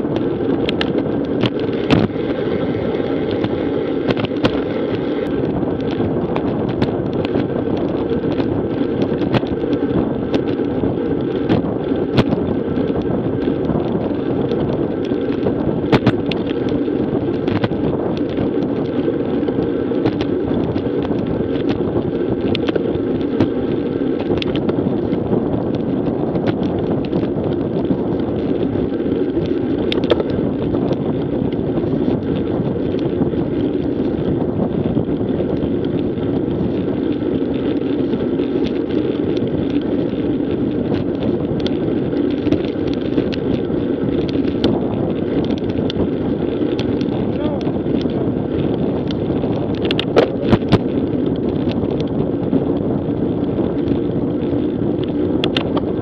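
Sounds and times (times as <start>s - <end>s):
road rumble: 0.0s - 56.0s
small clicks and knocks from bumps: 0.0s - 56.0s
wind rush on microphone: 0.0s - 56.0s.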